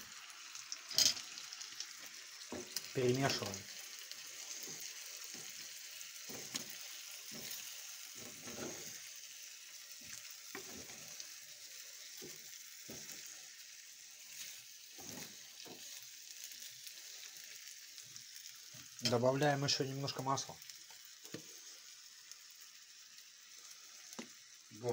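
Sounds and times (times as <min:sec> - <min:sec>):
dumplings sizzling in a frying pan: 0:00.0 - 0:24.9
wooden spatula scraping a pan: 0:04.3 - 0:05.6, 0:06.2 - 0:09.1, 0:10.0 - 0:11.2, 0:14.1 - 0:16.1.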